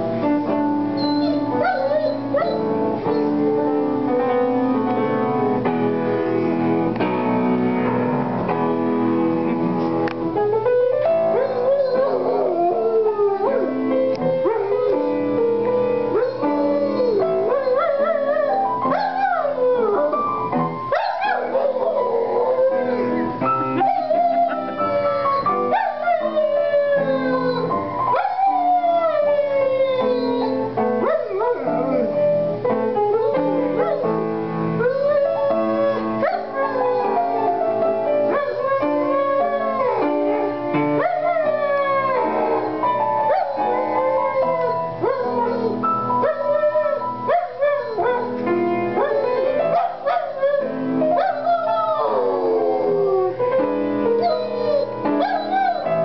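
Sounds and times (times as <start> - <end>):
piano playing: 0.0 - 56.0
dog howling: 1.0 - 3.7, 11.3 - 15.2, 16.1 - 20.2, 20.9 - 32.2, 34.8 - 48.4, 49.0 - 53.4, 54.2 - 56.0.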